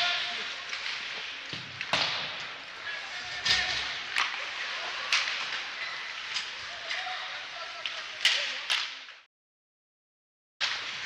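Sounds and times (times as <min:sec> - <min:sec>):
hockey sticks cracking on puck: 0:03.4 - 0:09.2.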